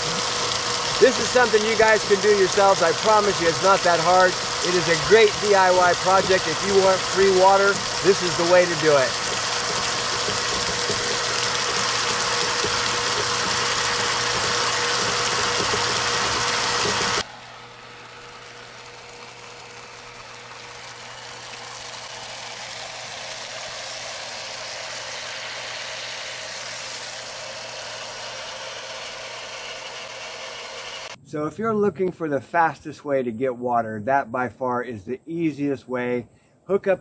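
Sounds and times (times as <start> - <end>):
steady hiss: 0.0 - 17.2
water pump humming: 0.0 - 31.2.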